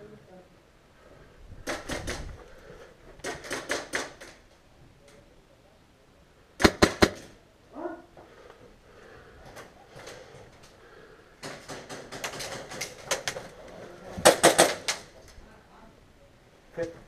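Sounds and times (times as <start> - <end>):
airsoft gunfire bursts: 6.6 - 7.3, 14.2 - 14.9.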